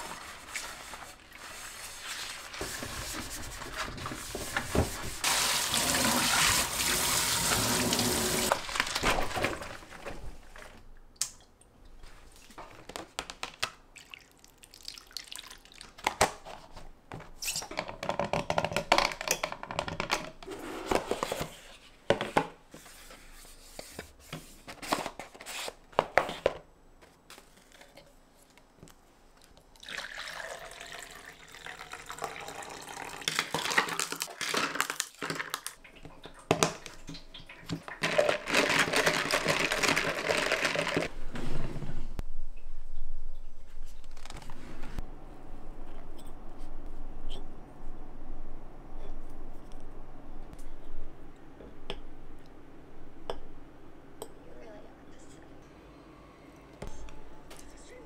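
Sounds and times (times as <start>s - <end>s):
tap water running into sink: 5.3s - 8.6s.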